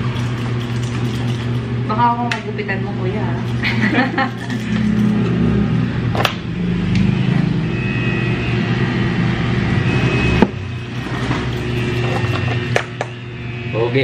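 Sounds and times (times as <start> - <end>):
electric hair clippers buzzing: 10.7 - 13.0.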